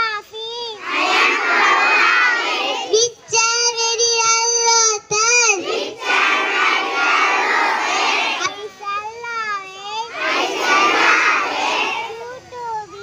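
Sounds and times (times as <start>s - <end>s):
children singing in unison: 0.8s - 3.8s, 4.8s - 8.6s, 10.1s - 12.2s
girl singing into a microphone: 3.0s - 5.6s.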